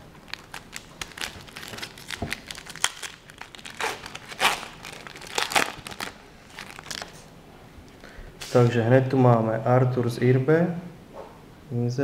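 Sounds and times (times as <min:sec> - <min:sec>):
wrapper crinkling and tearing: 0:00.0 - 0:07.3.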